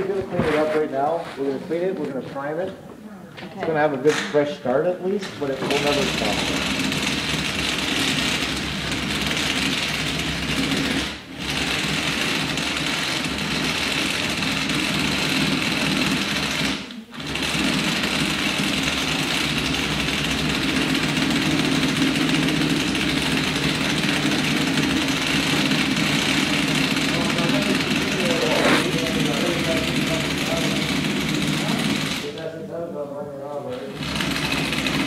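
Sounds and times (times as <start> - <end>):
handheld power tool running: 5.4 - 32.4, 34.0 - 35.0.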